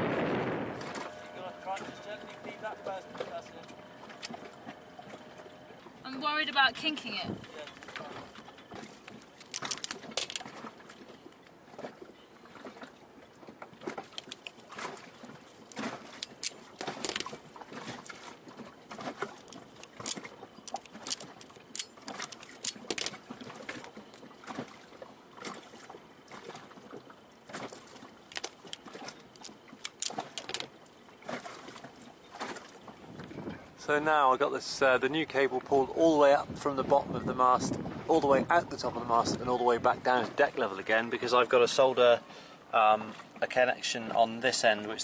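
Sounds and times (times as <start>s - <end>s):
hands handling cable and connector: 9.0s - 10.5s, 14.1s - 14.6s, 19.5s - 23.3s, 28.3s - 30.7s.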